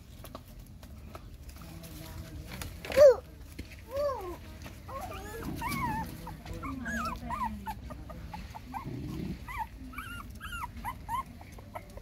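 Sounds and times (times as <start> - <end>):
puppies whimpering: 4.2 - 12.0.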